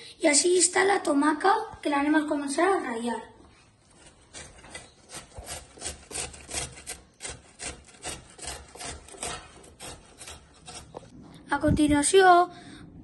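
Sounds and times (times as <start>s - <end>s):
tomato rasping on a grater: 3.8s - 11.1s.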